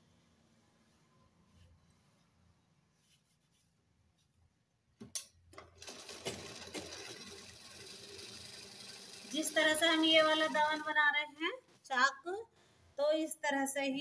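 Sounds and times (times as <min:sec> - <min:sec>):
sewing machine stitching: 0:05.6 - 0:11.0.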